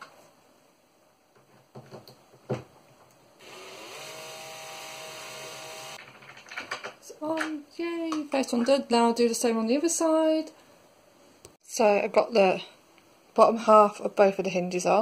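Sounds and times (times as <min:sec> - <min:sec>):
cordless drill driving screw: 0:03.4 - 0:06.0.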